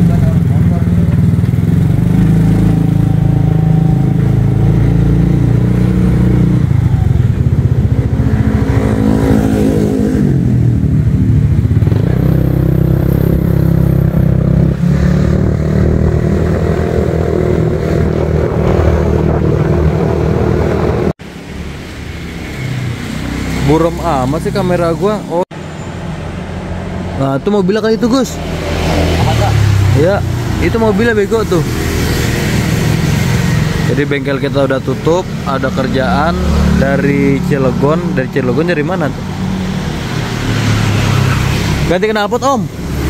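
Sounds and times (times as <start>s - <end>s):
motorcycle engine running: 0.0s - 21.4s.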